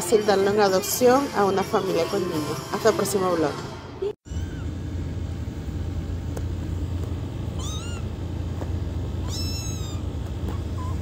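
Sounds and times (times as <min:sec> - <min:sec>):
low steady hum: 0:00.0 - 0:11.0
kitten meowing: 0:04.2 - 0:04.8, 0:07.5 - 0:08.2, 0:09.1 - 0:11.0.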